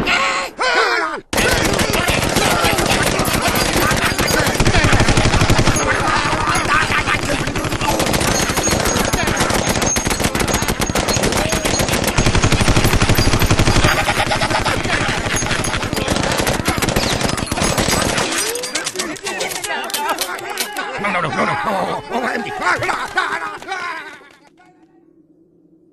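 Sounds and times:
automatic rifle fire: 1.4s - 18.4s.

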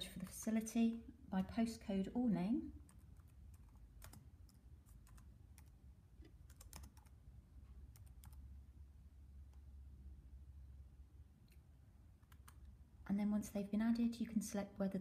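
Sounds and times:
steady low hum: 0.0s - 15.0s
laptop keyboard keystrokes: 2.9s - 5.7s, 6.4s - 7.2s, 7.9s - 8.4s.

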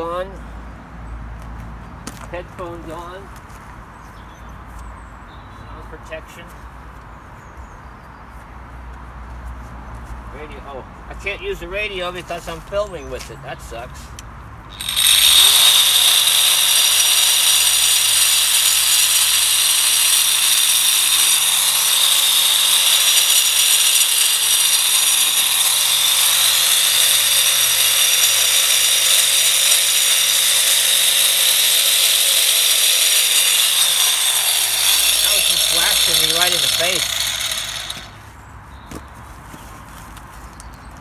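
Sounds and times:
angle grinder cutting masonry: 14.7s - 38.2s.

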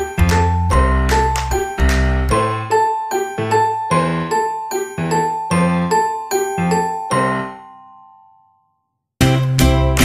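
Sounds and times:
tinkling bell-like melody: 0.7s - 8.4s.

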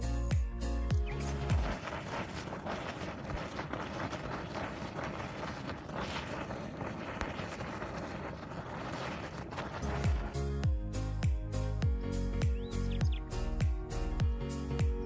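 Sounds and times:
hot spring bubbling and hissing: 1.1s - 10.4s.

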